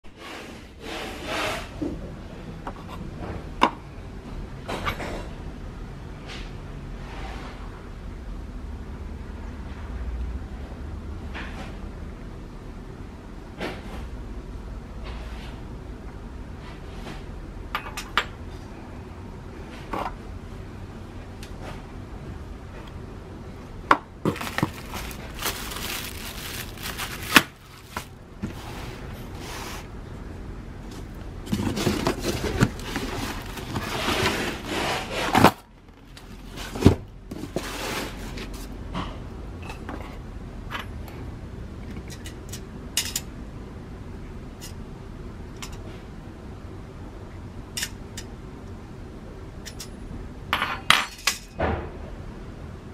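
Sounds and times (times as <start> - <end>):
fork rubbing and scraping: 31.5 - 35.4.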